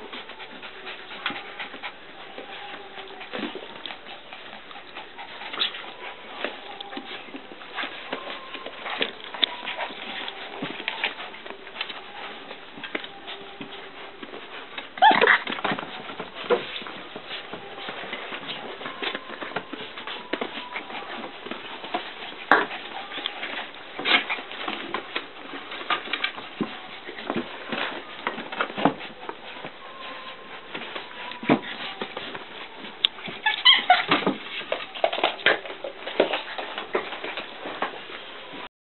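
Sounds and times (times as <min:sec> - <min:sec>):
puppies scuffling and pawing: 0:00.0 - 0:38.7
puppy yelps: 0:15.0 - 0:15.6, 0:33.3 - 0:34.3.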